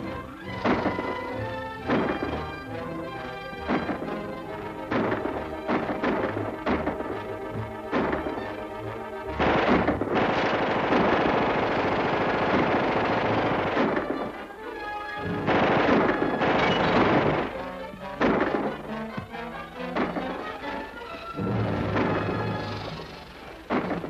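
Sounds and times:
orchestral action music: 0.0s - 24.0s
rapid gunfire: 0.4s - 14.5s, 15.2s - 19.0s, 19.9s - 20.9s, 21.6s - 24.0s
sharp crash: 3.6s - 8.6s, 9.4s - 14.4s.

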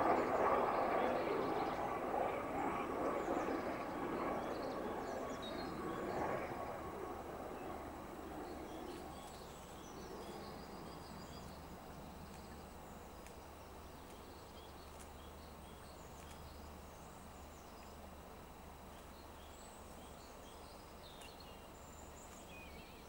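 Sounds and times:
small birds chirping: 0.0s - 18.2s, 18.8s - 23.0s.

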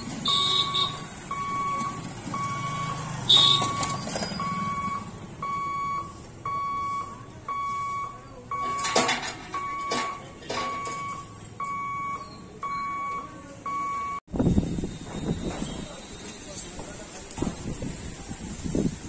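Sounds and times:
motorcycle engines passing: 0.0s - 6.2s
level crossing warning beeps: 0.2s - 14.2s.

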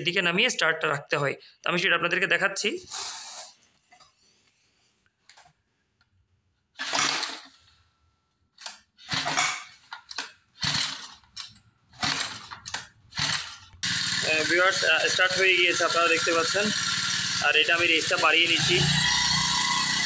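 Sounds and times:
recoil starter rope cranking: 6.8s - 7.6s, 9.0s - 20.0s
small engine starting: 6.8s - 7.6s, 9.0s - 9.7s, 10.6s - 11.2s, 12.0s - 20.0s
starter rope rattling back: 10.6s - 11.4s, 12.0s - 20.0s.

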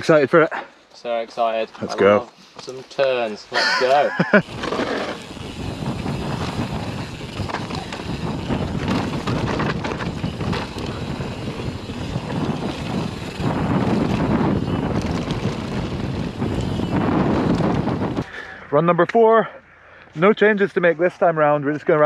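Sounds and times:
bike rattling: 2.6s - 18.4s
tyres rolling over loose dirt: 3.8s - 18.3s
wind buffeting microphone: 4.2s - 18.4s.

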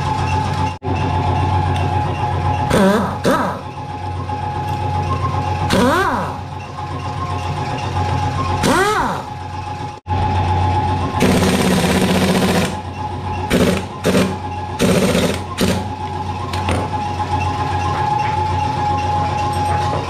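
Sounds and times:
pneumatic impact wrench: 2.7s - 3.7s, 5.6s - 6.5s, 8.6s - 9.4s, 11.2s - 12.9s, 13.5s - 16.0s.

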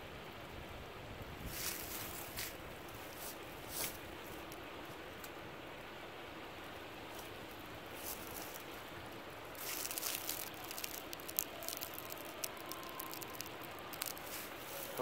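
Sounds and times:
faint outdoor hiss: 0.0s - 15.0s
dry pine needles crackling: 1.5s - 5.8s, 6.4s - 15.0s.

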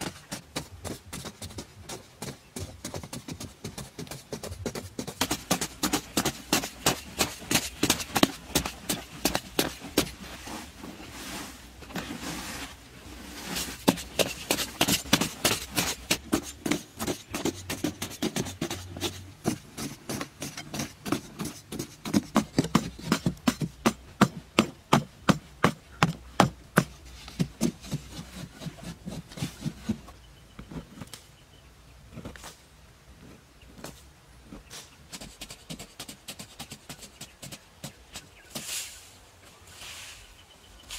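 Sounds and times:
digging sticks knocking clay soil: 0.0s - 12.6s, 13.2s - 31.4s, 32.1s - 39.0s.

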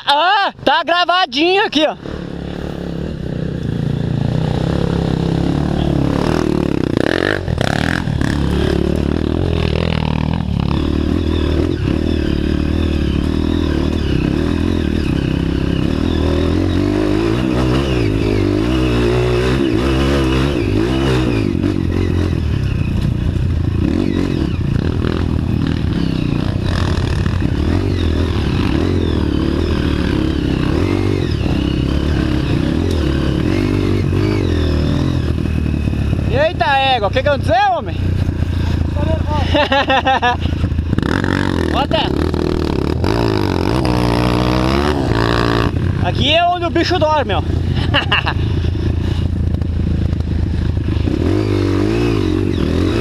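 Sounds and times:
motorcycle engine revving: 1.4s - 53.0s.

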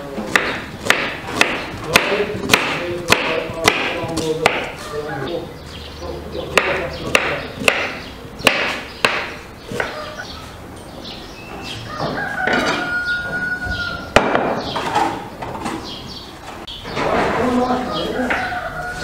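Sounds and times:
knife chopping on wooden board: 0.2s - 4.8s
rooster crowing: 11.8s - 14.2s, 17.8s - 19.0s.

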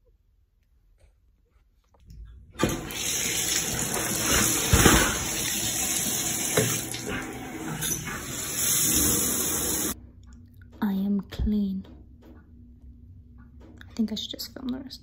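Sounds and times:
shower water running into bathtub: 2.6s - 10.0s.

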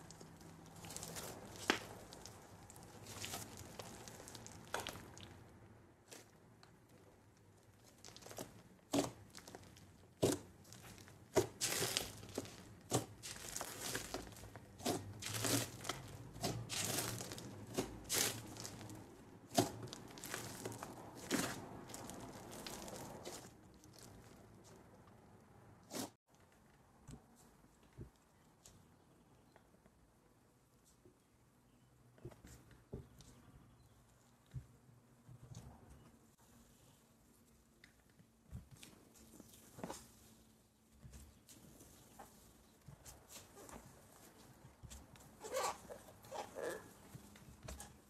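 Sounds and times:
slime crackling and popping: 0.0s - 5.4s, 7.6s - 24.6s.

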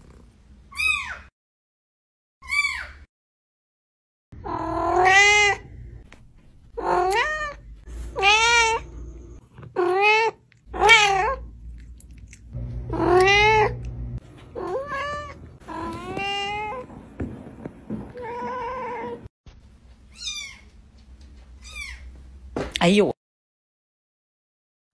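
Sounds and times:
cat meowing: 4.4s - 5.7s, 6.8s - 8.9s, 9.8s - 11.5s, 12.9s - 13.9s, 14.6s - 16.9s.

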